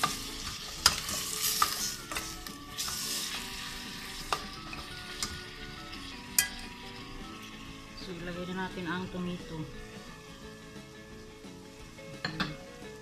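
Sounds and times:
metal spoon stirring: 0.0 - 5.4
meat and onions sizzling: 0.0 - 13.0
spoon clinking on pot: 6.4 - 6.6, 12.2 - 12.6.

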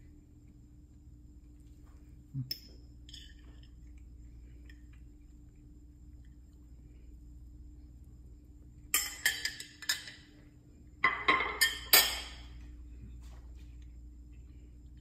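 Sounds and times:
metal utensil clinking on dishware: 9.0 - 10.2, 11.0 - 12.5.

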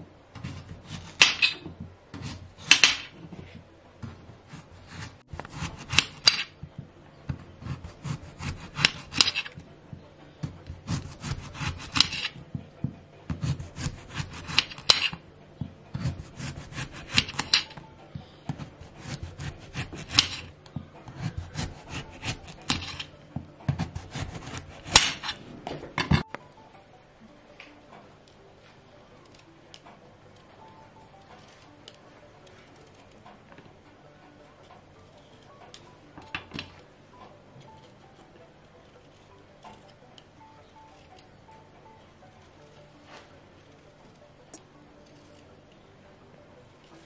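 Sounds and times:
knife sawing through squash: 4.4 - 6.4, 7.6 - 9.4, 10.6 - 12.3, 13.3 - 14.8, 16.0 - 17.5, 18.6 - 20.4, 21.1 - 23.0, 23.8 - 25.1.

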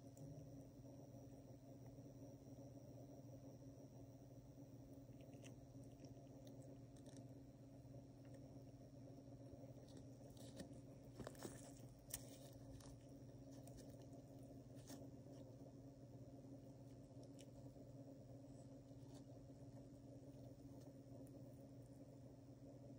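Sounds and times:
faint room hum: 0.0 - 22.9.

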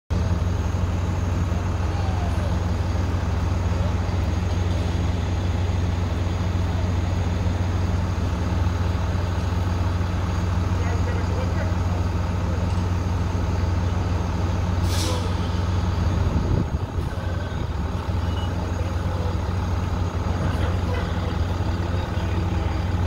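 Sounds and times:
diesel truck engine running: 0.1 - 23.0
air brakes hissing: 14.6 - 18.7.

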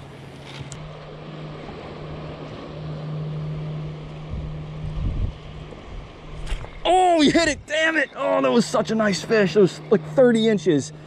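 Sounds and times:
surf: 0.0 - 11.0
wind: 0.0 - 11.0
spinning reel whirring: 8.4 - 11.0.

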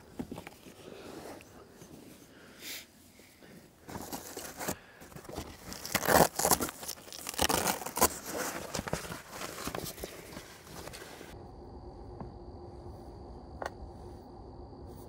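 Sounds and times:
crinkling and rustling: 0.0 - 2.2, 3.6 - 11.4.

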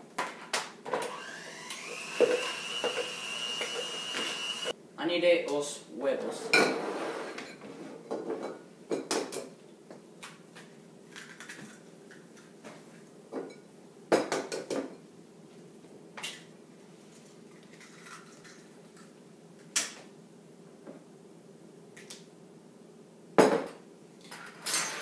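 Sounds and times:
bowls and utensils clattering: 24.3 - 25.0.

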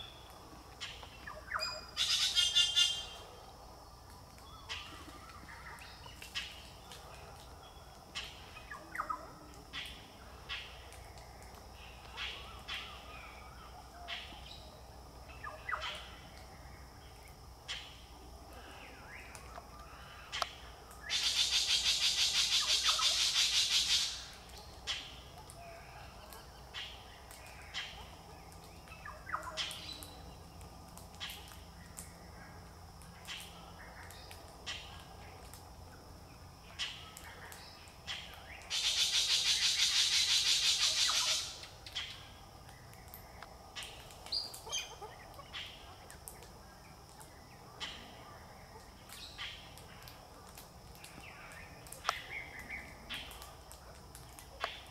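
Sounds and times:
bird high-pitched calls: 0.8 - 3.2, 38.1 - 42.2.

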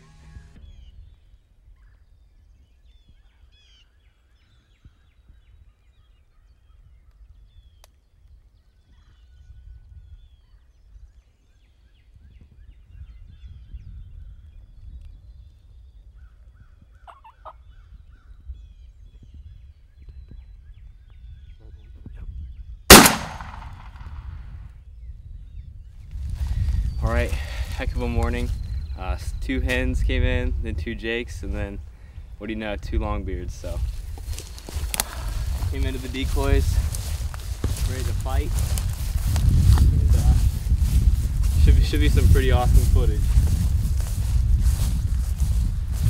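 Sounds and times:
faint bird chirps: 0.6 - 22.8
turkeys calling softly: 16.2 - 18.4
shotgun shot echoing: 22.9 - 24.3.

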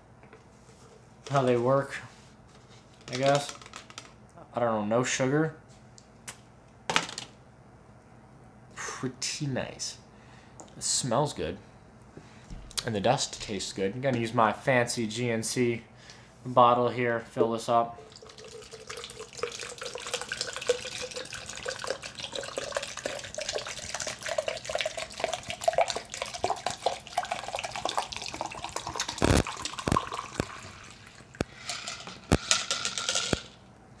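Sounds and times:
water pouring into plastic cup: 18.1 - 32.4.

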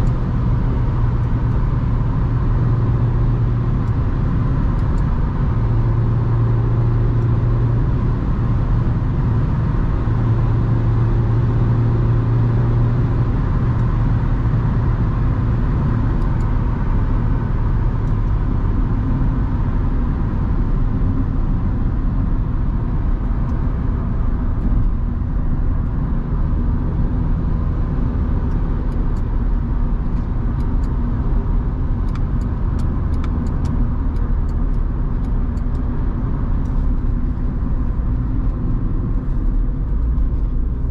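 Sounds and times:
car engine hum: 0.0 - 40.9.

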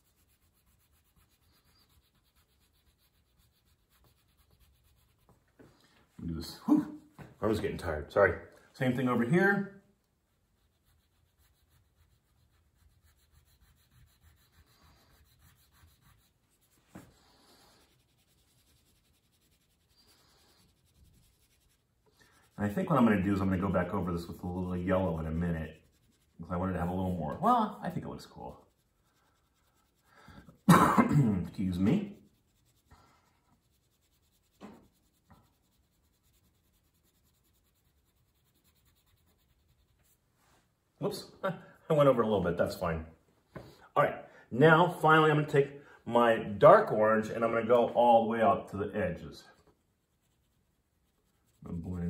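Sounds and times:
crayon rubbing on paper: 0.0 - 5.4, 10.3 - 30.7, 31.4 - 40.2, 49.6 - 52.0.

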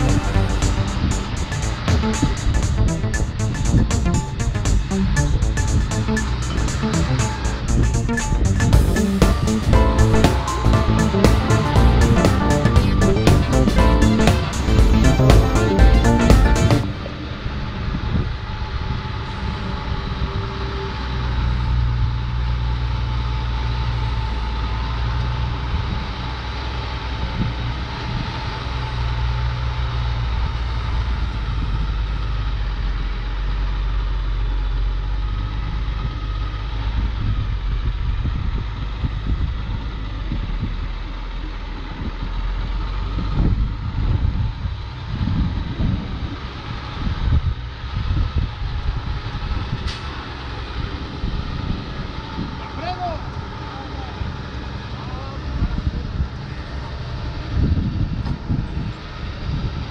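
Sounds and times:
truck diesel engine running: 0.0 - 37.1.

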